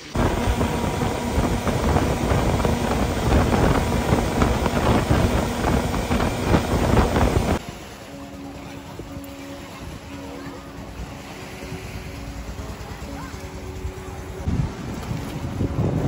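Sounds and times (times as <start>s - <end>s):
wind buffeting on microphone: 0.0s - 7.6s, 14.4s - 16.0s
speedboat engine drone: 0.0s - 16.0s
water rushing off hull: 0.0s - 16.0s.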